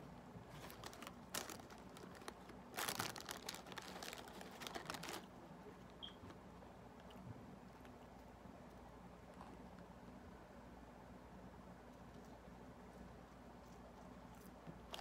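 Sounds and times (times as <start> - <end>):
plastic bag crinkling: 0.4 - 5.4.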